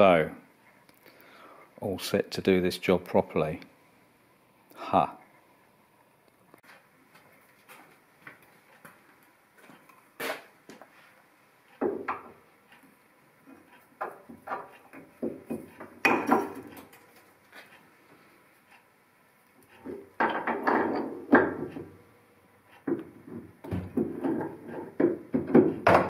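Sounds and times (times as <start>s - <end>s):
metal clunks and clanks: 19.7s - 22.0s, 22.7s - 26.0s.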